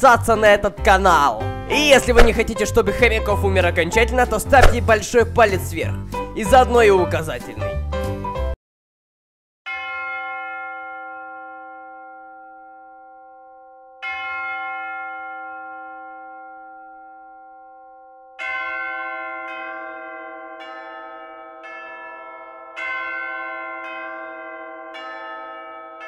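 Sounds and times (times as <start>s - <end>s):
church bells tolling: 9.7s - 26.0s.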